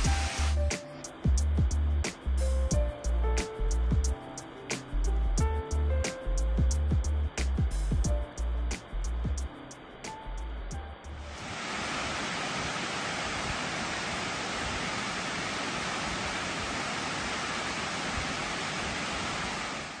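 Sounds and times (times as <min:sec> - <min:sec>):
water rushing over dam spillway: 0:11.2 - 0:20.0.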